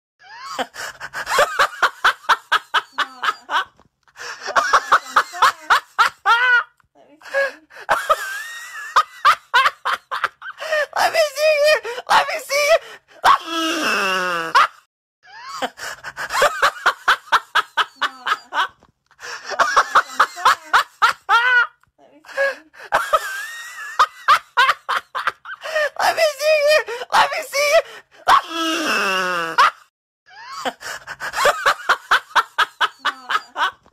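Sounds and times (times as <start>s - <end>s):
person laughing hard: 0.3s - 14.7s, 15.4s - 29.8s, 30.4s - 33.9s.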